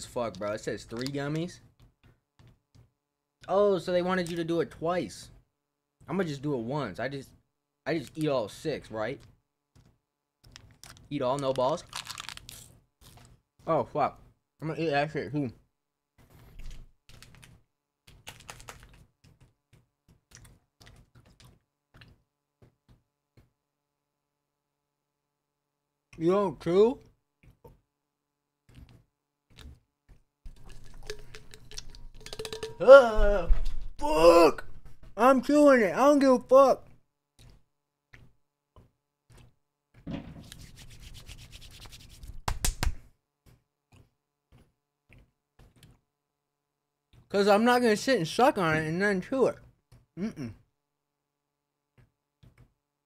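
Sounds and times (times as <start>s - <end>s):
short irregular clicks and smacks: 0.2s - 3.6s, 9.2s - 11.7s, 16.2s - 23.6s, 42.4s - 46.0s, 49.6s - 50.1s, 51.9s - 52.8s
faint chewing: 16.3s - 22.3s, 28.6s - 32.8s
hands rubbing together: 40.5s - 43.0s.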